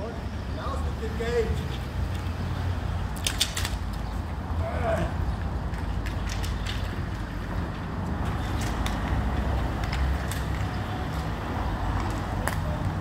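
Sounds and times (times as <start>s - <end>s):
low street rumble: 0.0s - 13.0s.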